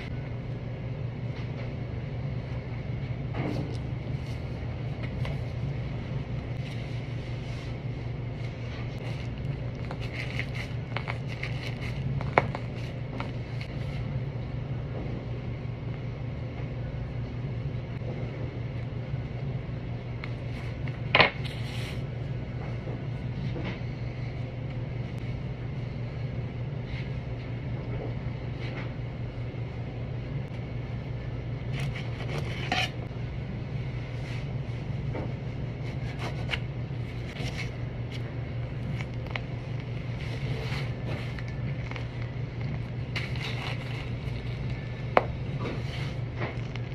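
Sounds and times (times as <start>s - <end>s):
kitchen machinery humming: 0.0s - 46.9s
knife scraping and clinking: 32.2s - 33.0s.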